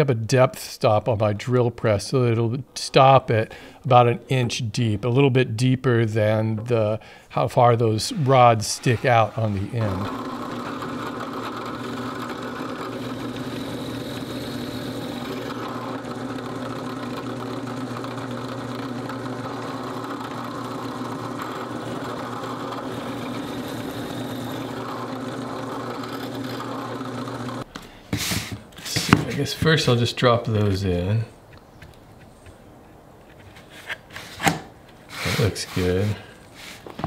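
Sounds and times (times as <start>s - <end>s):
drill press boring into wood: 8.2s - 27.7s.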